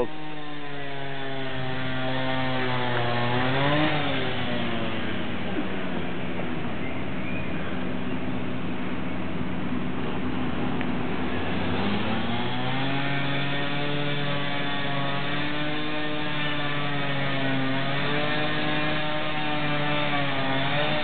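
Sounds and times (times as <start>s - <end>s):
engine drone: 0.0s - 21.0s.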